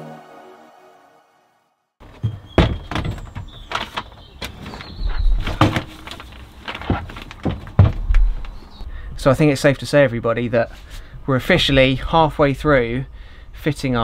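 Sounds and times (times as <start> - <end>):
background music: 0.0 - 1.9
plastic toilet knocking and thudding: 2.0 - 4.0, 5.4 - 8.4.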